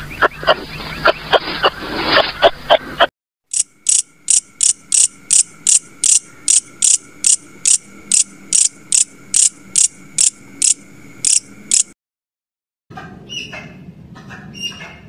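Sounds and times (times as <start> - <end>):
grasshopper chirping: 3.5 - 12.0.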